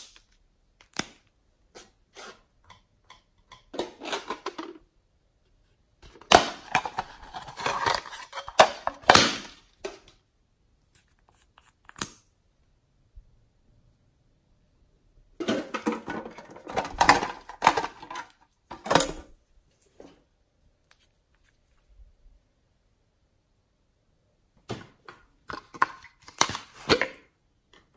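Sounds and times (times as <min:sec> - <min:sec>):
plastic containers clicking and rattling: 0:02.7 - 0:04.9, 0:06.0 - 0:10.2, 0:15.4 - 0:19.3, 0:25.0 - 0:27.2.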